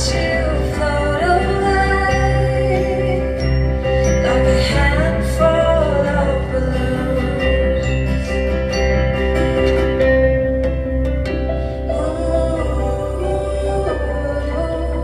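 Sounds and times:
woman singing: 0:00.0 - 0:08.5, 0:11.9 - 0:15.0
acoustic band playing: 0:00.0 - 0:15.0.

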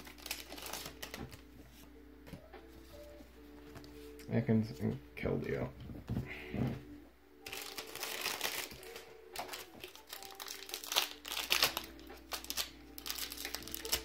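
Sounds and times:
foil wrapper crinkling: 0:00.0 - 0:01.4, 0:07.5 - 0:14.0.

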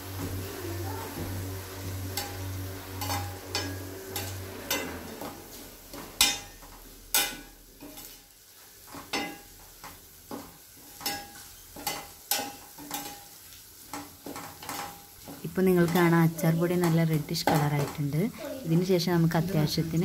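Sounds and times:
low sizzle: 0:00.0 - 0:20.0
metal spatula clinking on pan: 0:06.2 - 0:08.2, 0:08.9 - 0:09.5, 0:11.0 - 0:13.3.

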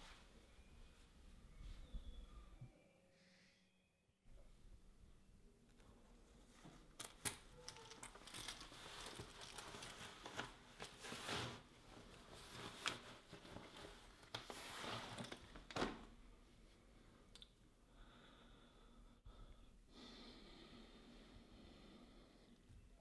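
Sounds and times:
soft rustling and crinkling: 0:05.6 - 0:16.9.

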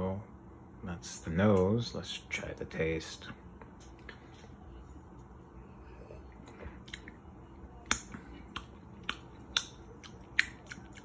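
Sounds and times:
mouth clicks and lip smacks: 0:07.8 - 0:11.0.

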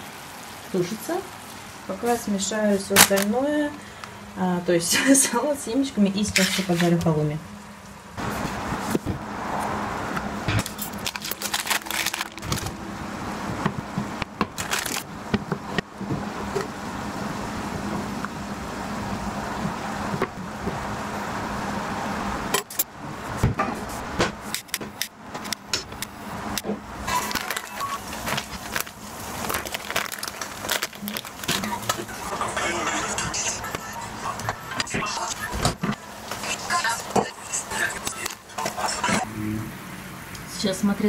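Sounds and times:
seed packet rustling: 0:03.0 - 0:03.3, 0:10.6 - 0:12.8, 0:14.5 - 0:15.1, 0:27.1 - 0:32.1.

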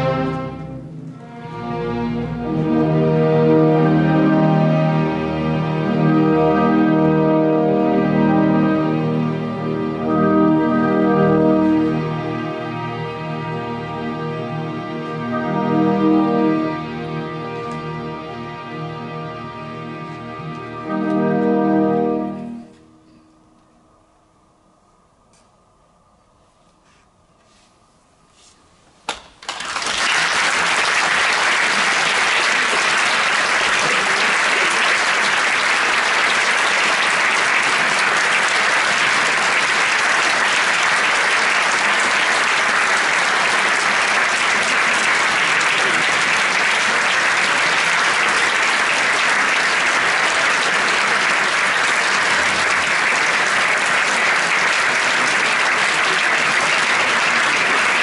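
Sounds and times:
audience applauding: 0:29.4 - 0:58.0.

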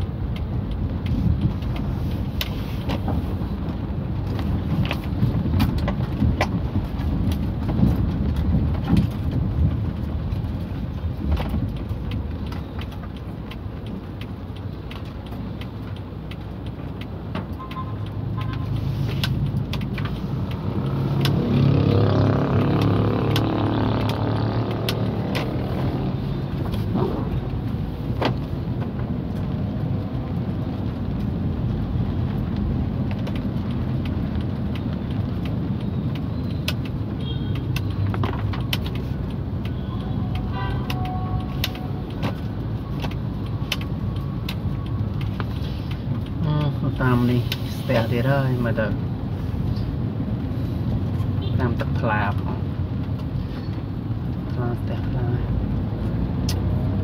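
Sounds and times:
engine and tyre hum: 0:00.0 - 0:57.0
raindrops ticking on car: 0:00.0 - 0:57.0
engine revving: 0:20.3 - 0:27.7.

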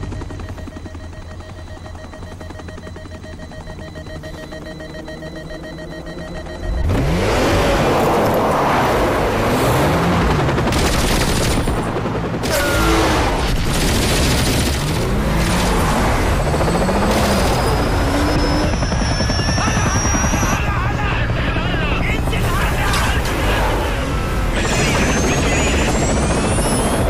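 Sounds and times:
car engine drone: 0:03.2 - 0:11.7, 0:12.4 - 0:27.0
machine-gun fire: 0:10.6 - 0:16.0.

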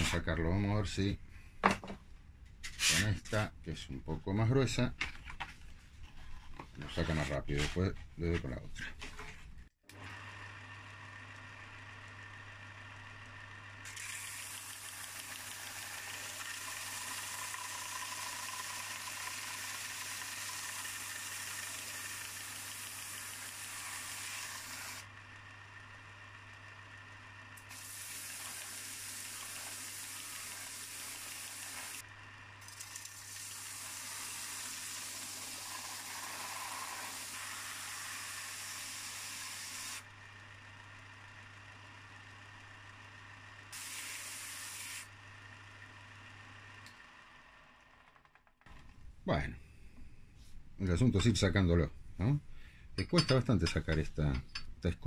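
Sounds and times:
belt sander motor hum: 0:09.9 - 0:48.9.

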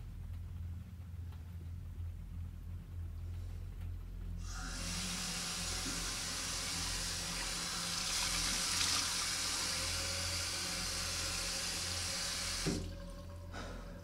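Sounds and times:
low steady hum: 0:00.0 - 0:14.0
running water rushing: 0:07.4 - 0:09.8.

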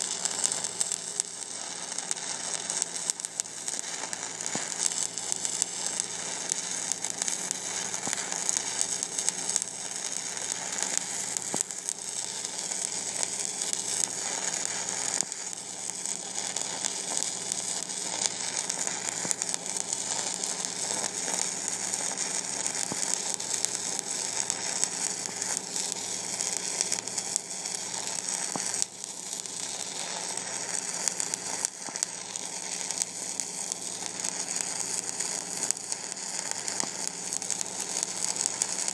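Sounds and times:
welding arc crackling: 0:00.0 - 0:38.9.

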